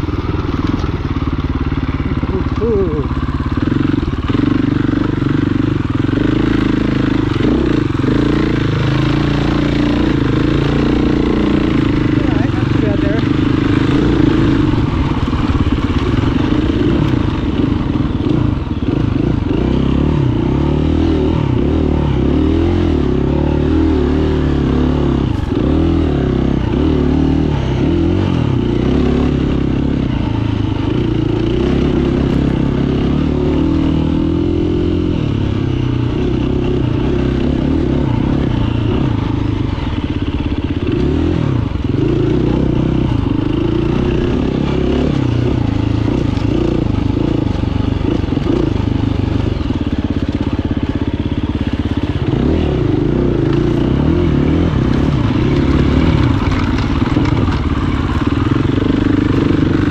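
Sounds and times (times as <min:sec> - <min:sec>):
dirt bike engine revving: 0:00.0 - 0:59.9.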